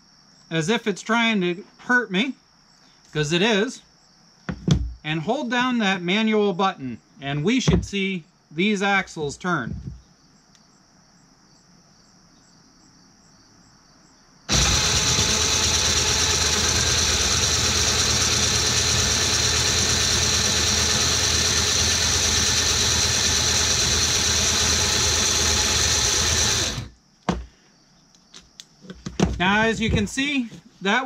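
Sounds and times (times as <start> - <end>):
crickets chirping: 0.0 - 14.5, 26.9 - 31.0
winch motor and gears whirring: 14.5 - 27.0.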